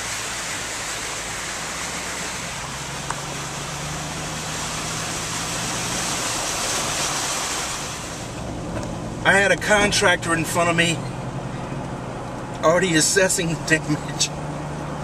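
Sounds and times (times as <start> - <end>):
tyres through water: 0.0 - 11.3
car engine hum: 0.0 - 15.0
tyre and road noise: 0.0 - 15.0.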